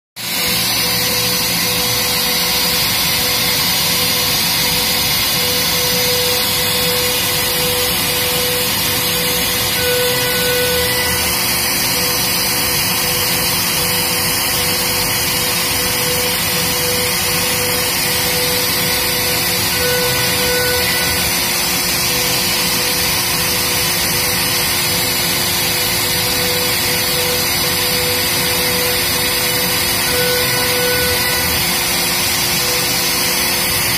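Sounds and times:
dust extraction vacuum: 0.2 - 33.9
router spindle whining: 0.2 - 33.9
end mill cutting wood: 0.3 - 33.9.

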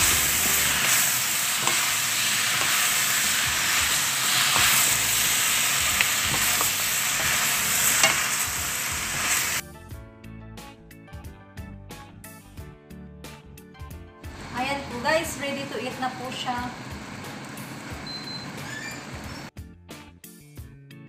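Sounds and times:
shrimp sizzling in a pan: 0.0 - 9.6.

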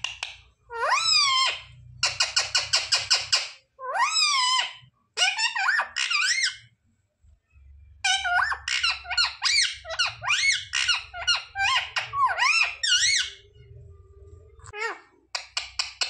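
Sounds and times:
parakeet squeaky calls: 0.1 - 6.7, 8.0 - 13.5.

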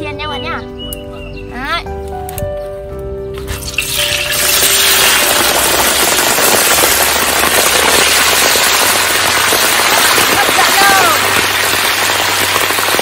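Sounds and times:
oil sizzling: 3.4 - 13.0
crabs dropped into hot oil: 3.5 - 10.2.

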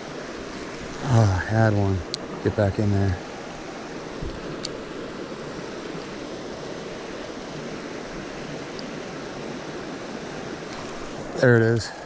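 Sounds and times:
creek flowing over stones: 0.0 - 12.0
light click: 4.6 - 4.8.

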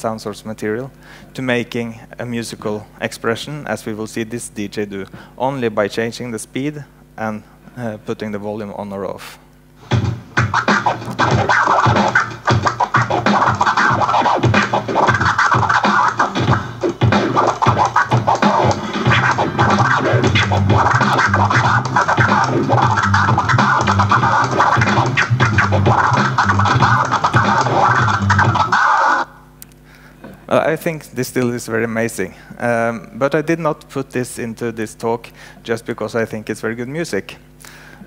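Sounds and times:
record scratching on turntable: 9.8 - 29.3.

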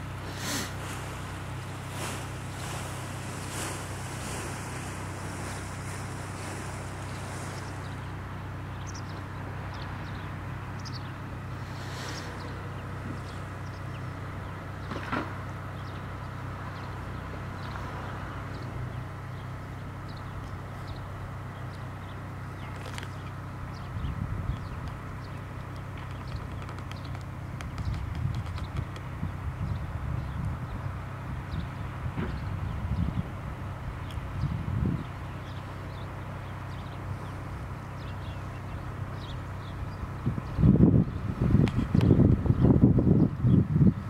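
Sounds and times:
low mechanical motor hum: 0.0 - 44.0.

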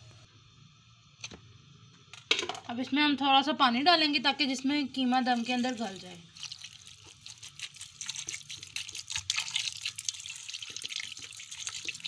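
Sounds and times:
water pouring into pot: 5.2 - 12.0.

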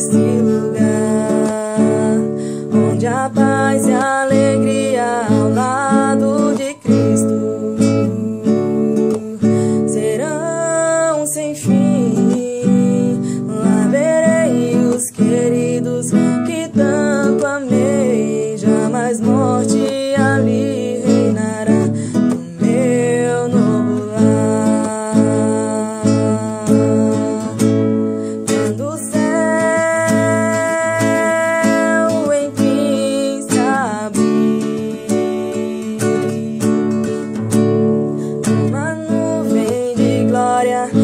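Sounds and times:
acoustic guitar: 0.0 - 41.0
woman singing: 0.0 - 41.0.

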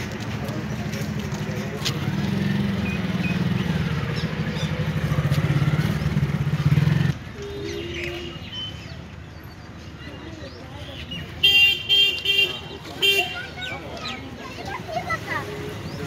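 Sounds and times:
street background noise: 0.0 - 16.0
vehicle engine running: 0.1 - 7.2.

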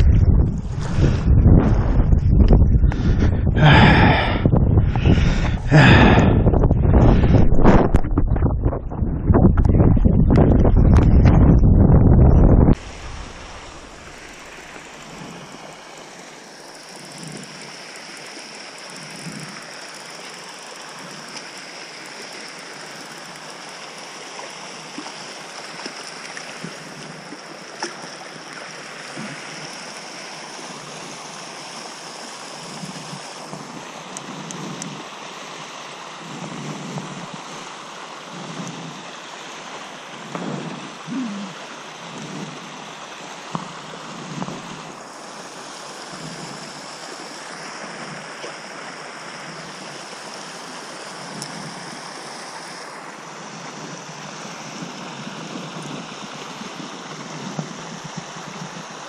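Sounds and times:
low thumps: 0.0 - 14.0
water jet splashing on pond: 12.8 - 59.0.

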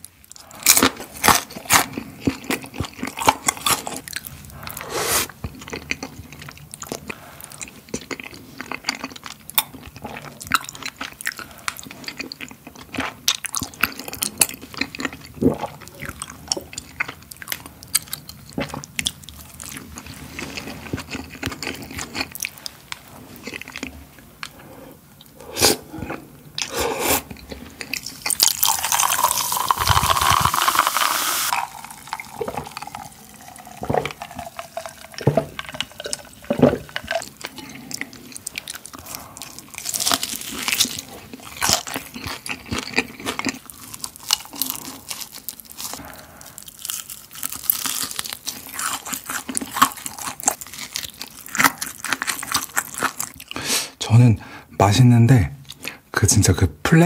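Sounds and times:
crunchy chewing: 0.1 - 53.6
cola poured fizzing into glass: 28.5 - 36.3.

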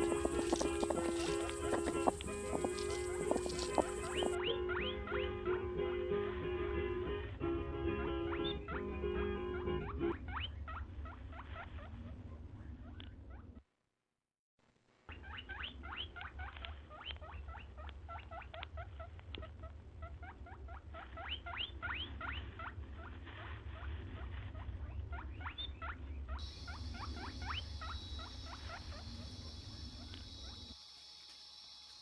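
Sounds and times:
hedgehog squeaking: 0.0 - 5.3, 8.3 - 8.9, 9.8 - 13.6, 15.1 - 30.7
steady high hiss: 26.4 - 32.0.

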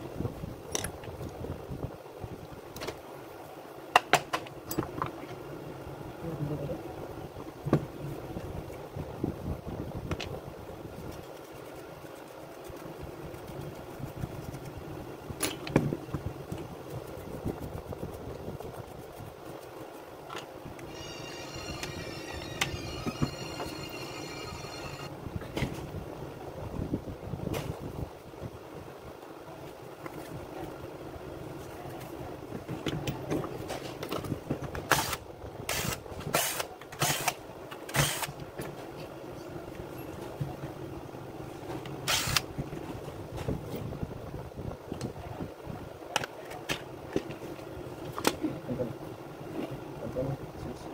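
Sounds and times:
low background hum: 0.0 - 50.9
cordless drill whirring: 20.9 - 25.1, 42.1 - 42.4.

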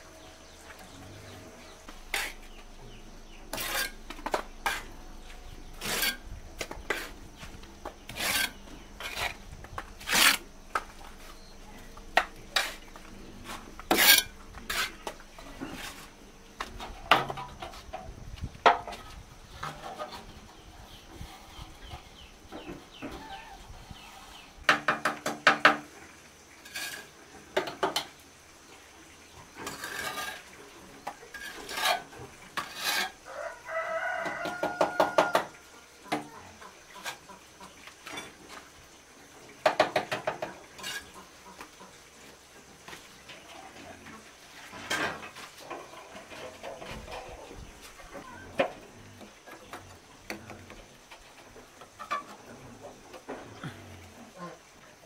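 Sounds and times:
scraping and knocking: 1.7 - 11.3
chickens clucking: 36.0 - 38.7, 40.1 - 42.4, 43.0 - 55.0.

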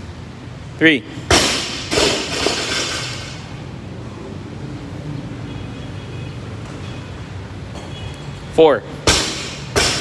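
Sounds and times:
barbell dropped on rubber floor: 1.3 - 3.4, 9.0 - 10.0.

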